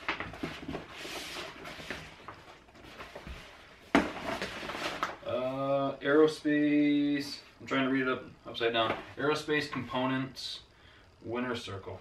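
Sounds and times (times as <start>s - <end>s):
vinyl sheet rustling and crinkling: 0.0s - 5.6s.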